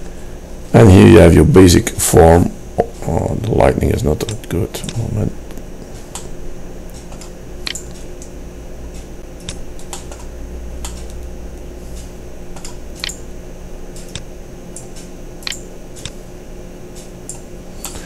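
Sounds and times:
steady low hum: 0.0 - 18.0
mouse and keyboard clicks: 7.0 - 8.0, 12.6 - 13.2, 14.0 - 16.2.

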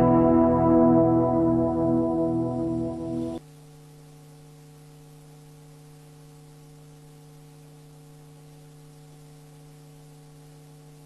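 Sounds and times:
steady low hum: 0.0 - 3.4.

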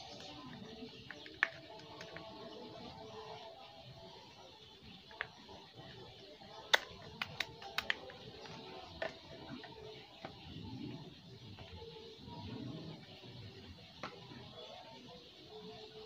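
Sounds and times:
plastic control box clicks: 6.7 - 9.2.

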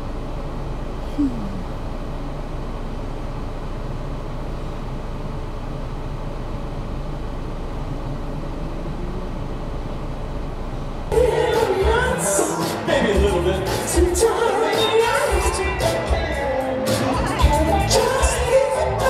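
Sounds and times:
car cabin engine and road noise: 0.0 - 12.4
loud music with singing: 11.1 - 19.0.

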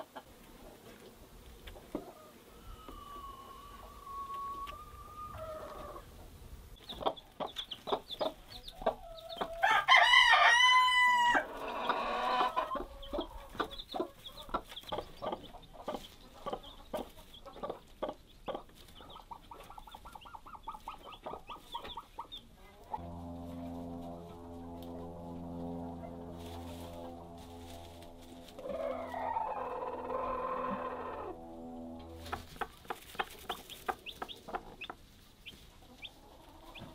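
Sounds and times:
chickens clucking: 0.0 - 9.7, 11.4 - 23.1, 25.9 - 36.9
rooster crowing: 9.6 - 13.0, 28.6 - 32.4.

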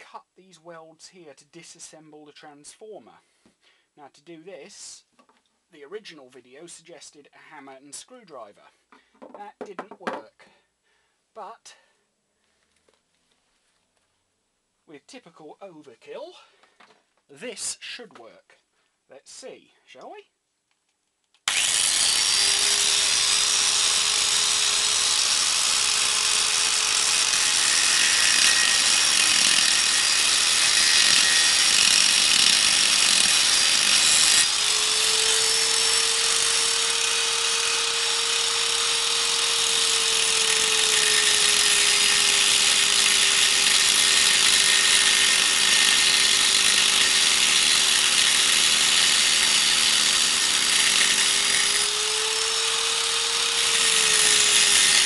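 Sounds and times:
angle grinder grinding steel: 21.5 - 55.0.

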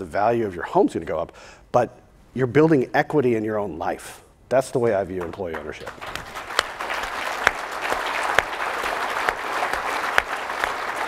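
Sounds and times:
audience applauding: 5.2 - 11.0
loud single claps: 5.2 - 11.0.

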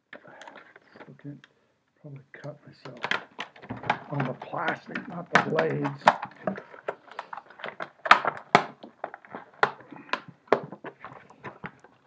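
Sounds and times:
plastic packaging crackling: 2.8 - 12.0.

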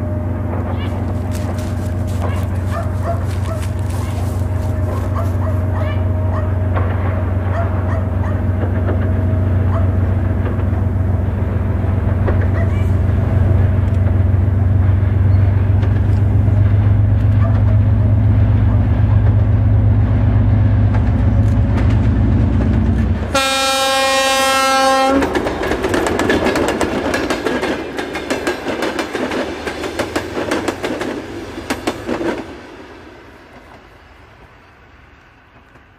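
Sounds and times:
diesel locomotive engine drone: 0.0 - 35.9
wheels clattering over rail joints: 0.4 - 19.6, 20.8 - 23.4, 25.2 - 32.5
locomotive horn blast: 23.3 - 25.4.

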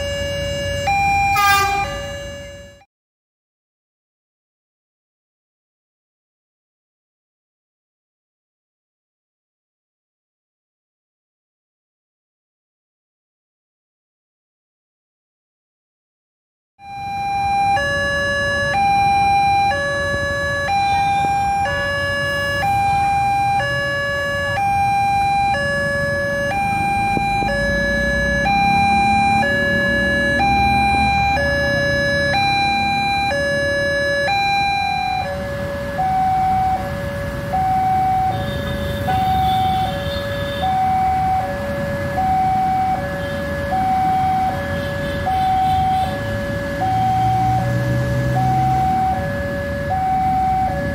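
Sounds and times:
road traffic rumbling: 0.0 - 2.8, 16.8 - 50.9
two-tone crossing alarm: 0.0 - 2.9, 16.8 - 50.9.

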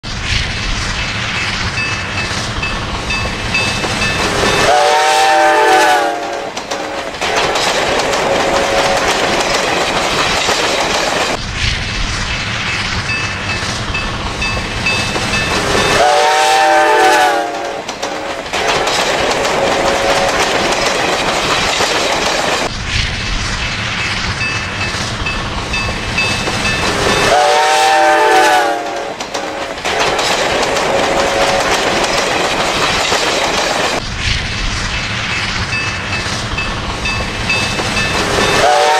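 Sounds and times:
train rumble and wheel clatter: 0.0 - 38.9
steam locomotive whistle: 4.4 - 7.0, 15.8 - 18.2, 27.1 - 29.6, 38.4 - 38.9.

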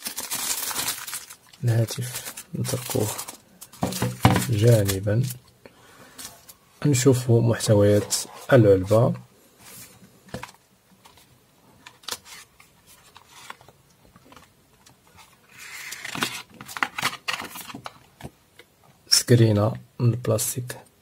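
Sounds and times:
paperboard rustling and scraping: 7.8 - 8.7, 12.1 - 13.7, 15.1 - 17.9.

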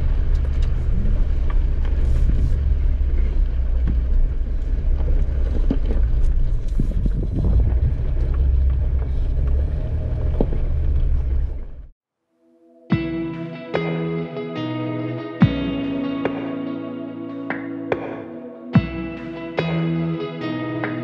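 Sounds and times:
vehicle engine and tyres rumbling: 0.0 - 12.0.

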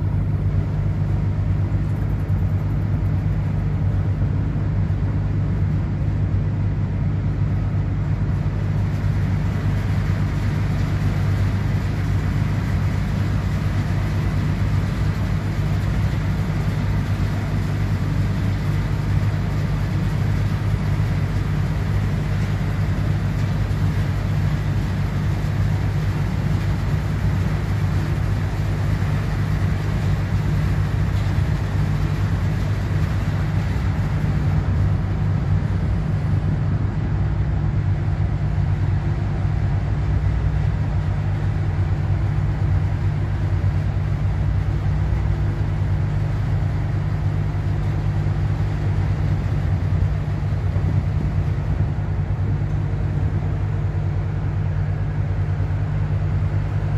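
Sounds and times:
broad rushing noise: 0.0 - 56.9
ship diesel machinery drone: 0.0 - 56.9.

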